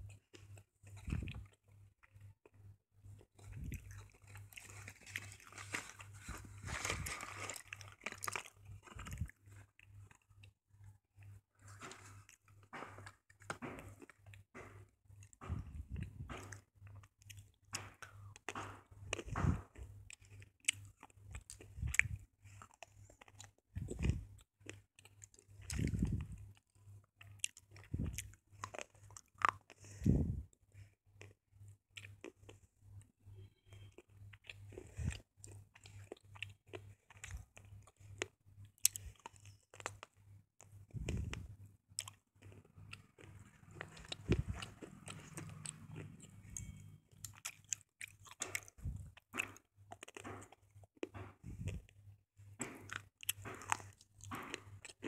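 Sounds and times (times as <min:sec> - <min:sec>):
cardboard box rustling and scraping: 0:04.8 - 0:07.6
deep chewing thud: 0:12.7 - 0:16.6, 0:17.8 - 0:19.9.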